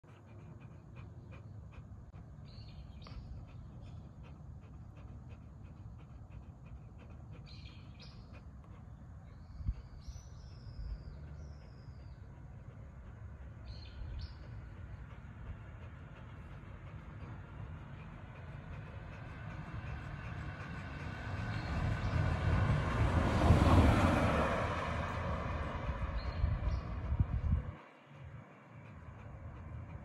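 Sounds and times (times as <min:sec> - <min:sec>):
dog panting: 0:00.0 - 0:30.0
birds chirping: 0:00.1 - 0:22.5
low steady rumble: 0:00.1 - 0:23.7, 0:25.0 - 0:30.0.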